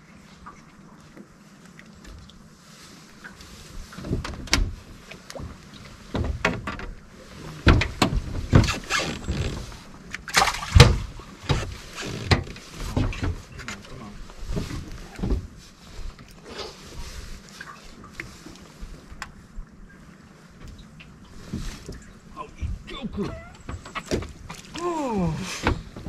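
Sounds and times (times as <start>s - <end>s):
knocks and clatter on aluminum boat: 3.3s - 17.1s, 22.8s - 24.8s, 25.6s - 26.0s.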